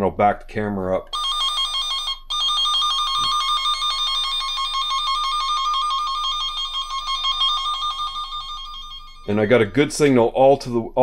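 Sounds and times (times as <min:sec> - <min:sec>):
two-pitch electronic warble: 0:02.3 - 0:10.1.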